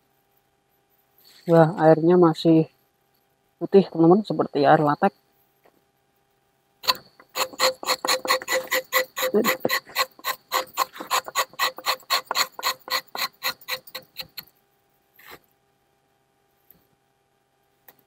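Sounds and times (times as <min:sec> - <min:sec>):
knife scraping tree bark: 0:06.8 - 0:14.5.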